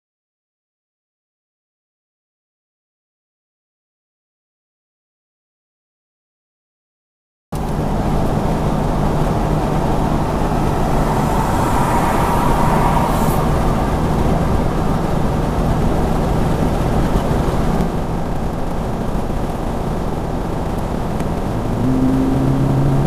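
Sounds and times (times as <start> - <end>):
car interior road noise: 7.6 - 23.0.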